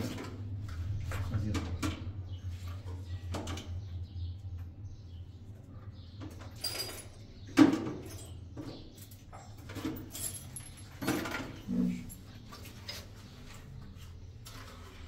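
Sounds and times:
handling knocks and rustles: 6.2 - 15.0.

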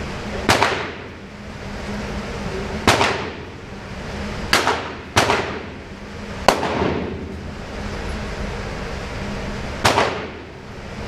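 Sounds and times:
steady low hum: 0.0 - 11.0
echoing gunshots: 0.4 - 1.1, 2.8 - 3.5, 4.5 - 5.8, 6.4 - 7.3, 9.8 - 10.5.

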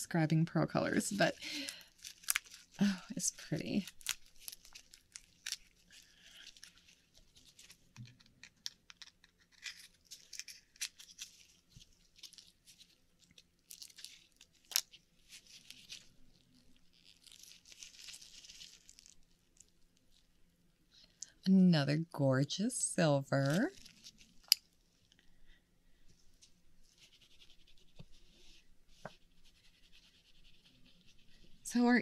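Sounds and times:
hands opening oyster shell: 1.7 - 2.6, 8.0 - 11.3, 13.7 - 14.9, 24.3 - 24.7.

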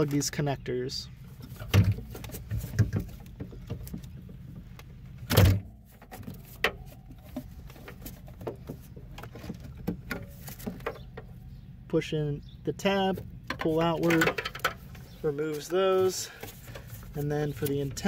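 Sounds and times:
wiring harness rustling: 13.6 - 18.0.

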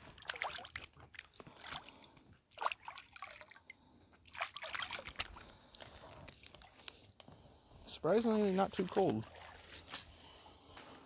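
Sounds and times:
hands splashing in water: 0.0 - 3.6, 4.2 - 6.9.

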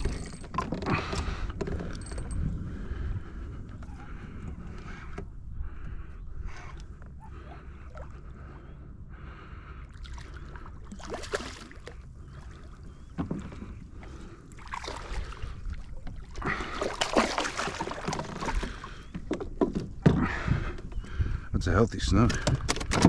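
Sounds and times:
wind and water rumble: 0.0 - 23.0
fish splashing at water surface: 16.4 - 18.8.

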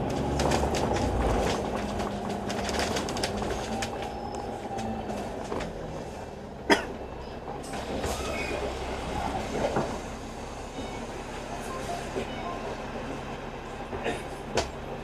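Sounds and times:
rattles and clicks: 0.0 - 6.1
bus engine and road rumble: 0.0 - 15.0.

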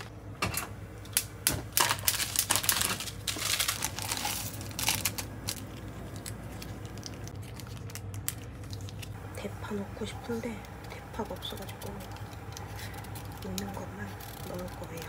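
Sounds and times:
plastic packaging crinkling: 1.5 - 9.2, 10.7 - 15.0.

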